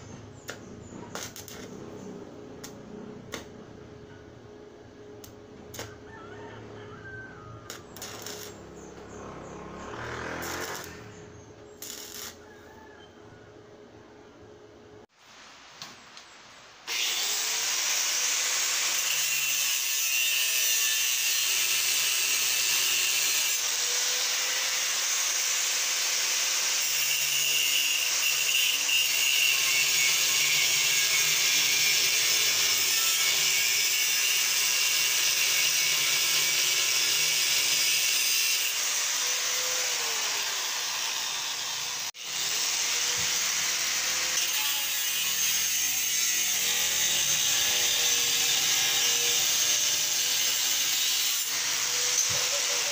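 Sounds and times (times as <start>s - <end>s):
angle grinder grinding metal: 7.7s - 12.4s, 16.9s - 52.9s.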